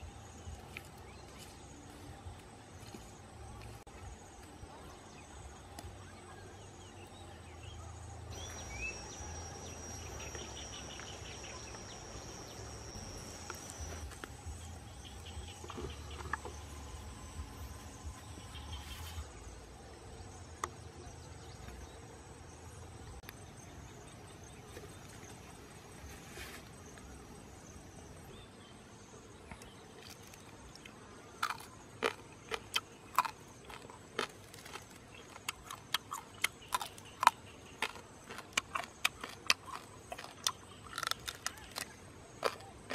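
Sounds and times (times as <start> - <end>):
insects calling: 2.8 - 42.9
high-pitched insect whine: 8.3 - 20.0.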